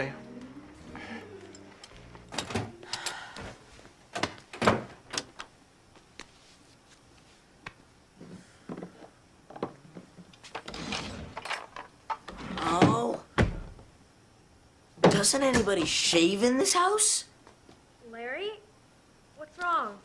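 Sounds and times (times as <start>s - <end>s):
doors and drawers opening and shutting: 1.4s - 5.5s, 9.6s - 13.8s.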